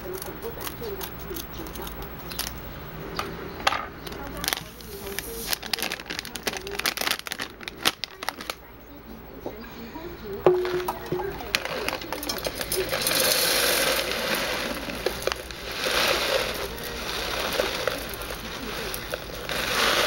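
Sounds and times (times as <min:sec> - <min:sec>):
tea leaves rattling in a tin: 0:04.0 - 0:08.7, 0:10.4 - 0:20.0
foil bag crinkling: 0:04.1 - 0:08.7, 0:10.4 - 0:20.0.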